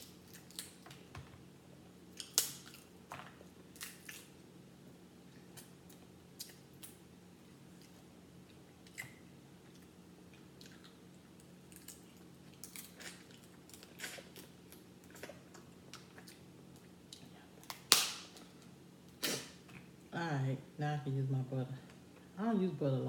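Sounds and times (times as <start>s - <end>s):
crab shells cracking: 0.0s - 1.0s, 2.1s - 2.9s, 17.6s - 18.5s
faint low hum: 0.0s - 23.0s.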